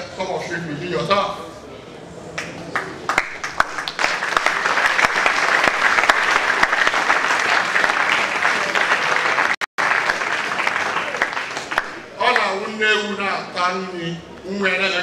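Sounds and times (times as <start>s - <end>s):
audience applauding: 2.4s - 12.6s.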